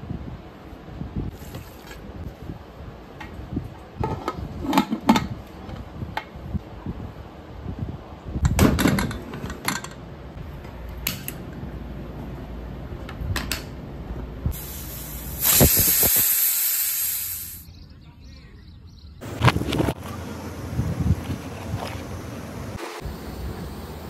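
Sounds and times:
pressure cooker steam hissing: 0:14.5 - 0:17.6.

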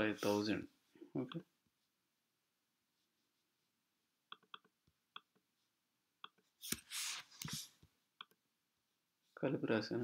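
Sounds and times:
keyboard and mouse clicks: 0:04.3 - 0:05.4.

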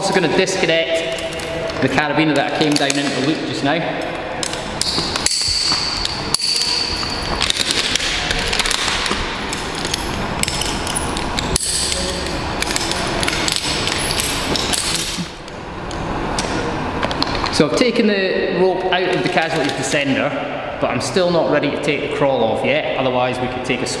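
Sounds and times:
carabiners clinking and rattling: 0:04.4 - 0:15.2.

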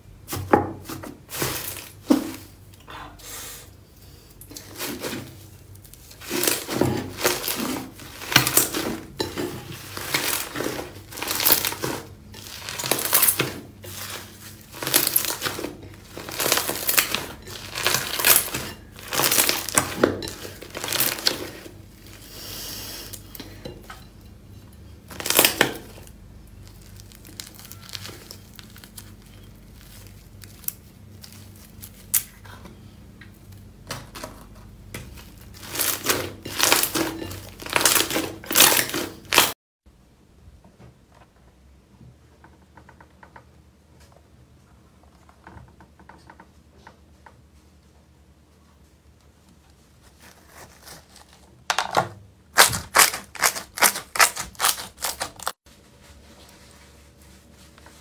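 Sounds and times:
slime squishing: 0:04.5 - 0:22.4, 0:34.1 - 0:39.5, 0:52.5 - 0:55.6.

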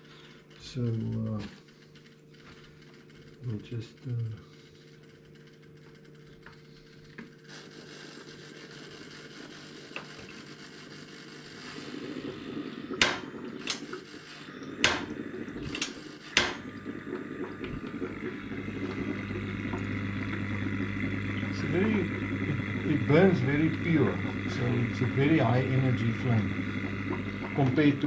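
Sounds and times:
gas burner flame: 0:06.6 - 0:28.0
gas hissing: 0:07.3 - 0:28.0
stove igniter clicks: 0:13.0 - 0:13.9, 0:14.8 - 0:15.1, 0:15.7 - 0:16.6.

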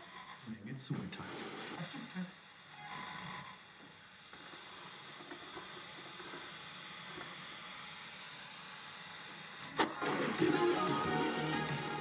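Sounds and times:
radio static hiss: 0:00.5 - 0:02.4
music from radio: 0:09.8 - 0:12.0.

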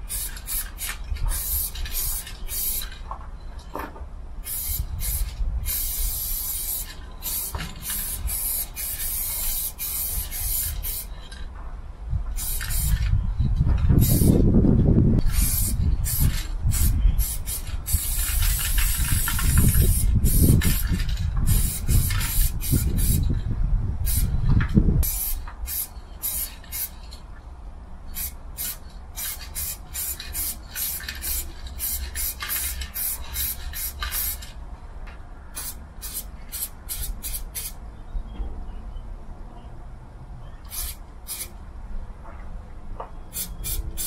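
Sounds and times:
spray paint cans hissing: 0:00.0 - 0:03.0, 0:04.4 - 0:11.2, 0:12.3 - 0:13.1, 0:14.0 - 0:14.4, 0:15.2 - 0:23.4, 0:24.0 - 0:24.4, 0:25.0 - 0:27.2, 0:28.1 - 0:34.6, 0:35.6 - 0:37.8, 0:40.7 - 0:41.5, 0:43.3 - 0:44.0.

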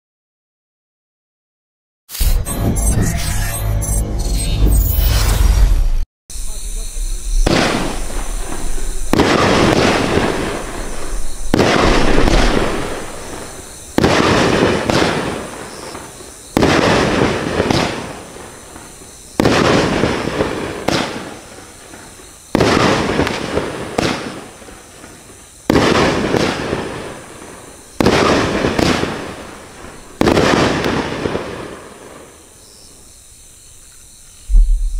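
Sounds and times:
fireworks bursts: 0:06.3 - 0:33.0.

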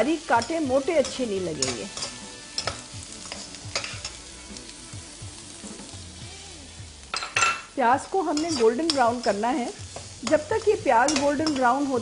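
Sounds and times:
onions sizzling in oil: 0:00.0 - 0:12.0
metal spatula clicking on pan: 0:00.4 - 0:04.2, 0:10.2 - 0:11.8.

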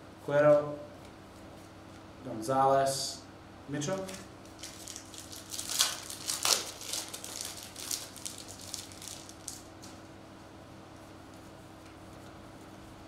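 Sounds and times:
foil wrapper tearing and crinkling: 0:04.1 - 0:10.0.

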